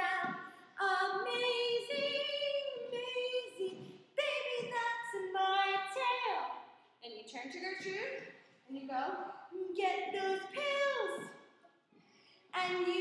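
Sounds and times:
woman singing unaccompanied: 0.0s - 6.5s, 12.6s - 13.0s.

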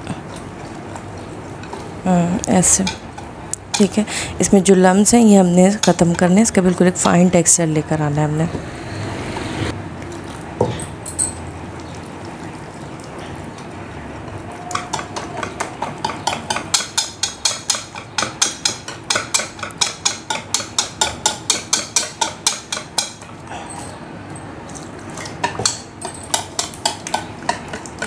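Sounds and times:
whisk clicking against bowl: 14.7s - 23.1s.

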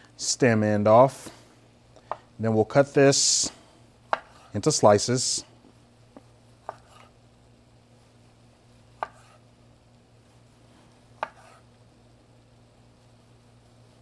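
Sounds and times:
knife slicing tomato: 4.1s - 4.6s, 6.6s - 7.2s, 8.9s - 9.5s, 11.0s - 11.7s.

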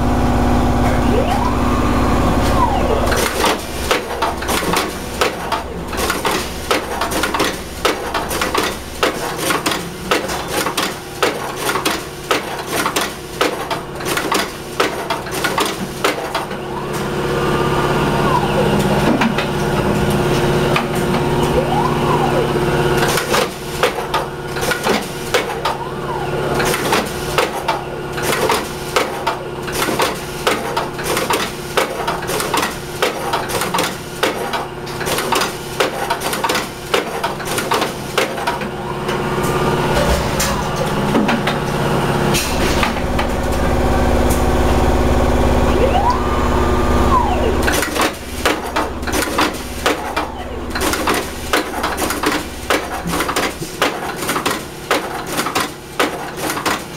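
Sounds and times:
motor whine: 0.0s - 4.4s, 43.8s - 48.4s
machine hum: 0.0s - 30.4s, 38.6s - 53.2s.

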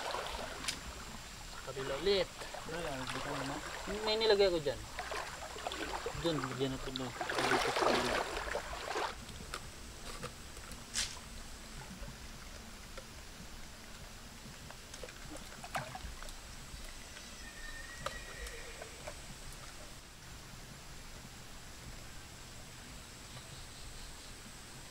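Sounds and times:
small clicks and rustles in mud: 0.0s - 17.4s
water sloshing around wading legs: 0.0s - 17.4s.

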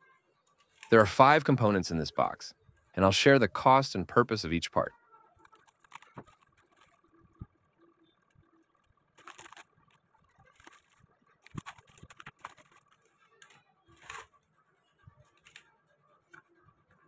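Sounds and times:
packing paper crinkling: 5.4s - 7.4s, 8.2s - 14.4s, 15.2s - 15.7s
foil bags rustling: 8.8s - 14.4s.

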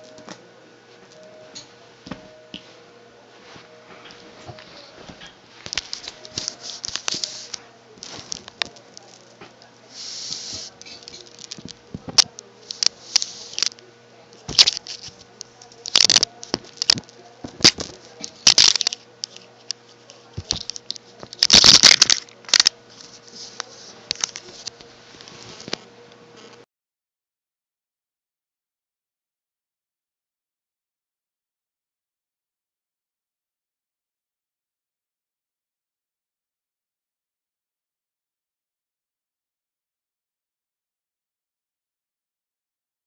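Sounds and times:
faint steady hum: 0.0s - 26.6s.

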